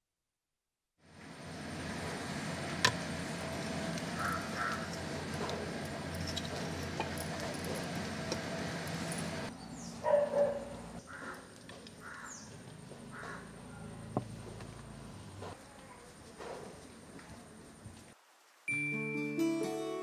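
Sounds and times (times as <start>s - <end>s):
faint bird calls: 4.1s - 5.0s, 9.8s - 14.1s
dog barking: 10.0s - 11.4s.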